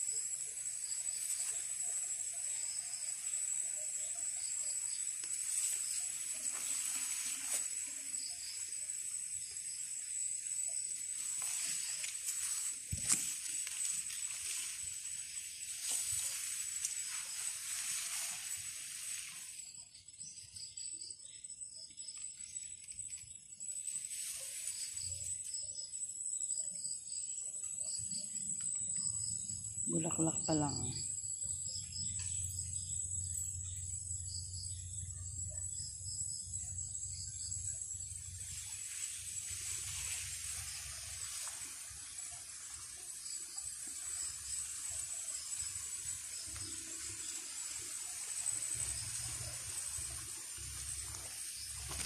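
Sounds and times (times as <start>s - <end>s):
insects chirring: 0.0s - 52.0s
leaves rustling against phone: 5.2s - 8.7s, 10.4s - 19.7s, 23.9s - 25.2s, 38.2s - 42.8s, 48.8s - 52.0s.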